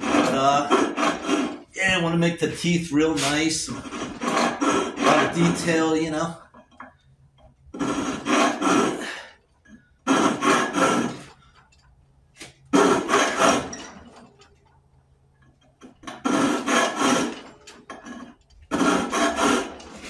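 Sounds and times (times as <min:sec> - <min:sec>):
hand file rasping on metal: 0:00.0 - 0:02.1, 0:03.1 - 0:06.3, 0:07.8 - 0:09.3, 0:10.1 - 0:11.4, 0:12.8 - 0:13.8, 0:16.0 - 0:17.5, 0:18.7 - 0:20.0.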